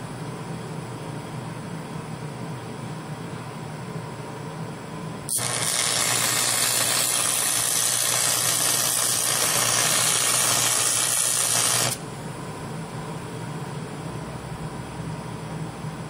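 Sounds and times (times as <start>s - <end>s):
welding arc sizzling: 5.3s - 12.0s.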